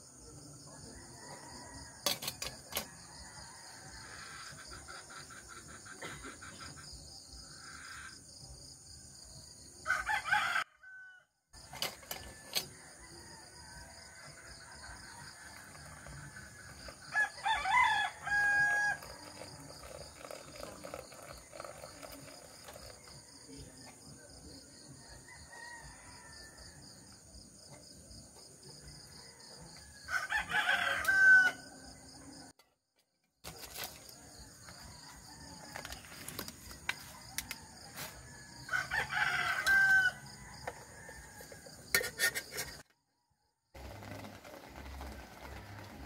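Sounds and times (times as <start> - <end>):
rooster crowing: 0.9 - 2.1, 9.8 - 11.3, 12.3 - 19.4, 25.1 - 26.9, 29.1 - 31.8, 37.0 - 41.8
insects chirring: 11.6 - 32.5, 33.4 - 42.8.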